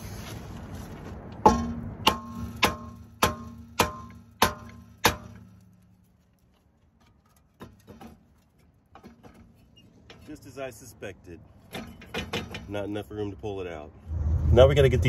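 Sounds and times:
hammer striking ringing brake disc: 0:01.4 - 0:05.7.

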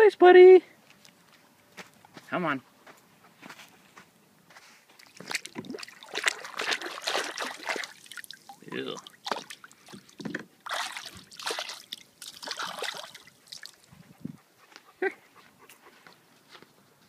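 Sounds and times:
short high dog vocalization: 0:13.9 - 0:15.8.

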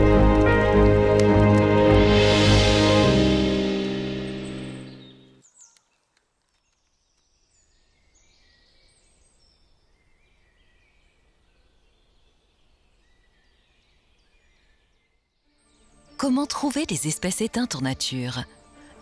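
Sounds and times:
music: 0:00.0 - 0:05.4, 0:15.4 - 0:19.0
faint birds chirping: 0:04.3 - 0:16.8.

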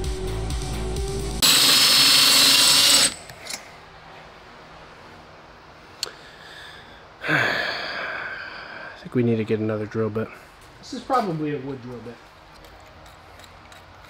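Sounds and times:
electronic music: 0:00.0 - 0:01.6
cordless drill running: 0:01.4 - 0:03.2.

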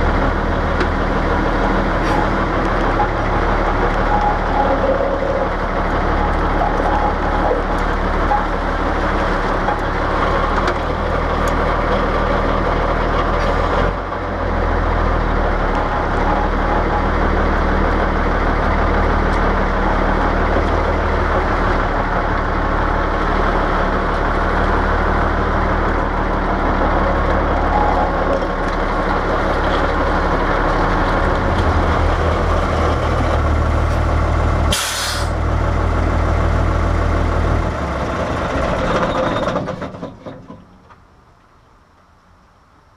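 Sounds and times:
diesel truck engine droning: 0:00.0 - 0:42.9
sharp hiss of air: 0:34.7 - 0:35.4.

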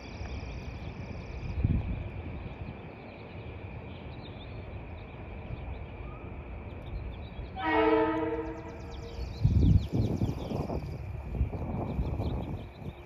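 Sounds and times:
train running noise: 0:00.0 - 0:13.0
train horn toot: 0:07.6 - 0:09.2.

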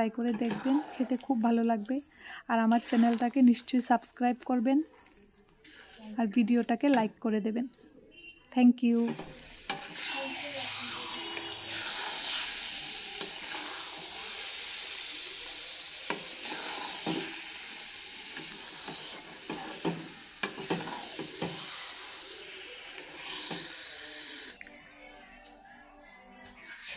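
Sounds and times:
metal spatula scraping pan: 0:00.2 - 0:01.3, 0:18.3 - 0:22.4
pickle sizzling in a pan: 0:09.1 - 0:24.6.

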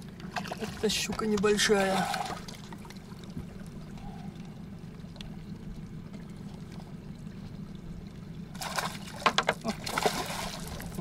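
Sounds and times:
steady low hum: 0:00.0 - 0:11.0
water splashing beside a boat: 0:00.0 - 0:11.0
fish thrashing at the surface: 0:08.6 - 0:11.0.

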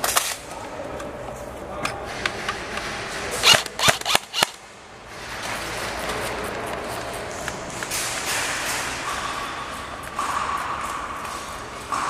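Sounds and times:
airsoft guns firing: 0:02.7 - 0:04.6.

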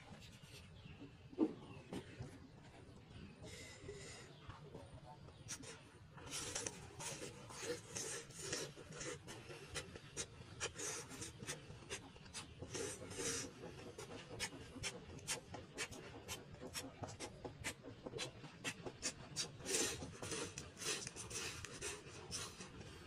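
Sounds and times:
crunchy chewing: 0:05.5 - 0:23.0.

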